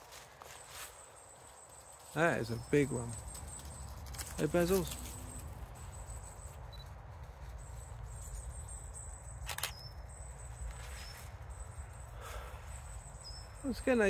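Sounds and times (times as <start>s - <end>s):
faint chirps: 0.4s - 14.0s.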